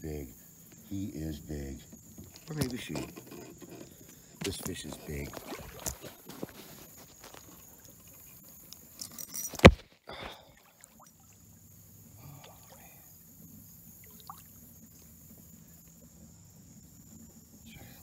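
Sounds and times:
water sounds: 0:03.9 - 0:08.7, 0:10.3 - 0:14.9.

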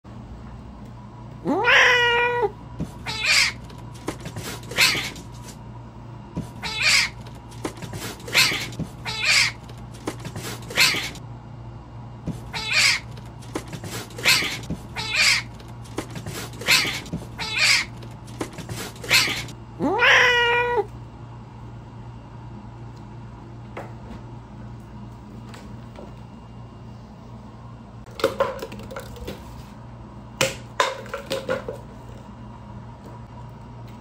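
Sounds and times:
kittens meowing: 0:01.4 - 0:03.6, 0:04.6 - 0:05.2, 0:06.6 - 0:07.2, 0:08.2 - 0:09.6, 0:10.6 - 0:11.2, 0:12.5 - 0:13.1, 0:14.1 - 0:15.5, 0:16.6 - 0:18.0, 0:19.0 - 0:20.9.

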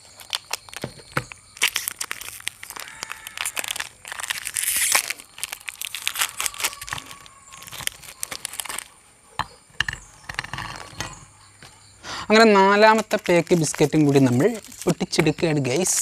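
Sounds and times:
plastic wrappers crinkling and tearing: 0:00.0 - 0:09.0, 0:12.3 - 0:16.0.

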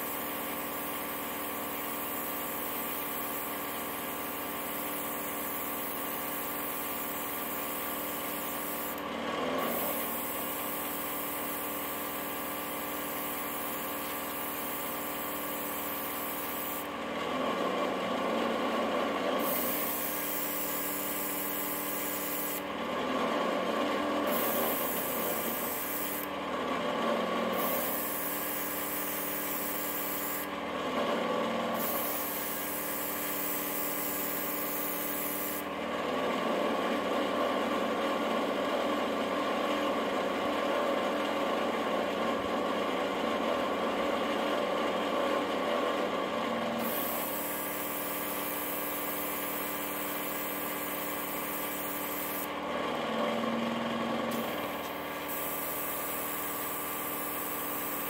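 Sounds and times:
airbrush hissing: 0:00.0 - 0:09.0, 0:09.7 - 0:16.9, 0:19.4 - 0:22.6, 0:24.3 - 0:26.3, 0:27.6 - 0:30.5, 0:31.8 - 0:35.6, 0:46.8 - 0:52.5, 0:54.3 - 0:58.0
compressor humming: 0:23.6 - 0:30.8, 0:51.8 - 0:58.0.

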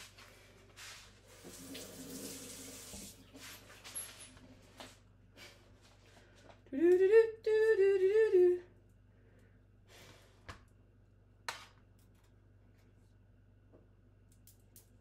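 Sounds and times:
woman humming: 0:06.7 - 0:08.8.

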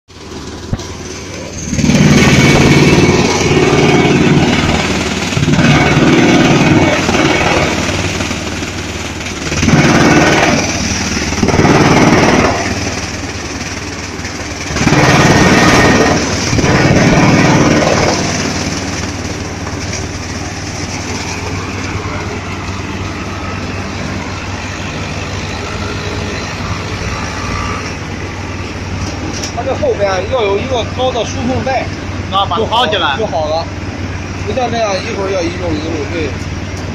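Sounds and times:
drum chipper crushing plastic: 0:00.4 - 0:22.2.

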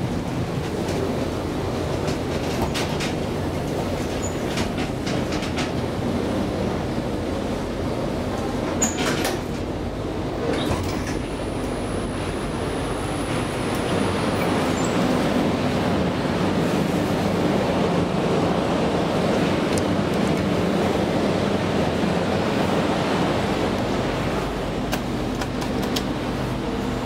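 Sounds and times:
elevator clicks: 0:24.9 - 0:26.2.

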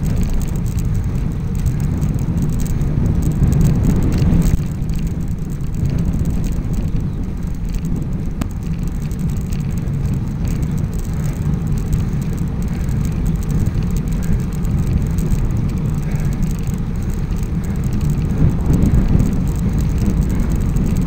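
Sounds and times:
wind and road noise rumble: 0:00.0 - 0:21.0.

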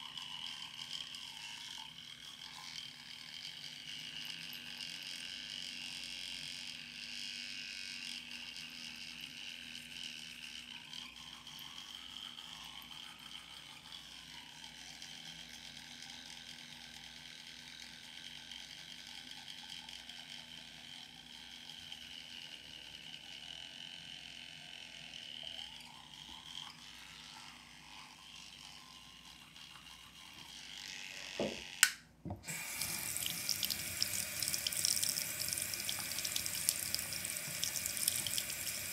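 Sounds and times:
teeth being brushed: 0:25.5 - 0:30.8
tap running into sink: 0:31.4 - 0:38.6
sharp click: 0:31.8 - 0:32.0.

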